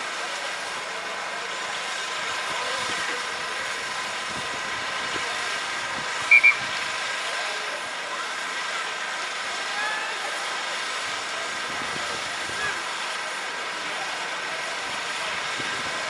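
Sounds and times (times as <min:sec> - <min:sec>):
outdoor background hum: 0:00.3 - 0:16.0
referee's whistle blasts: 0:06.3 - 0:06.8.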